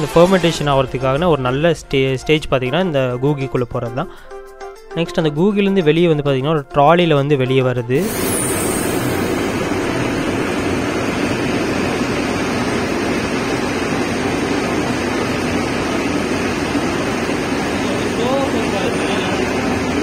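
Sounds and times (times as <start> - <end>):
rotating drum machinery: 8.0 - 20.0.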